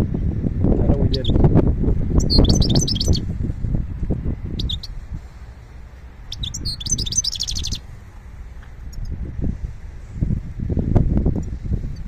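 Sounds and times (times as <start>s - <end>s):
low rumble: 0.0s - 12.0s
songbirds chirping: 0.8s - 10.2s.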